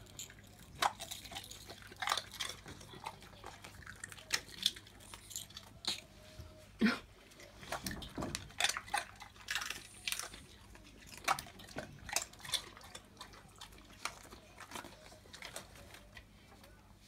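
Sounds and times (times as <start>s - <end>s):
dog crunching a chew: 0.0s - 6.1s, 7.3s - 16.3s.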